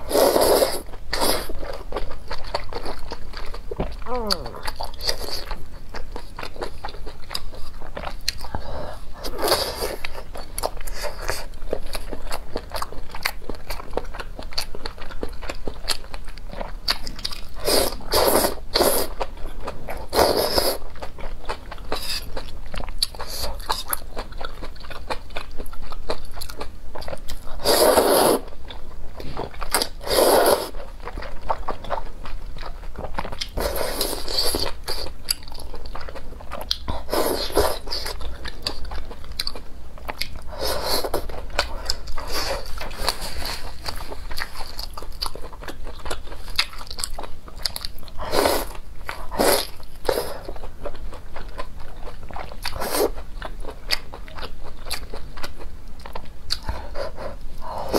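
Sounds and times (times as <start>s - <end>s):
noodle slurps: 0.1s - 1.5s, 27.6s - 28.4s, 30.0s - 30.7s
wet chewing and mouth clicks: 0.1s - 57.9s.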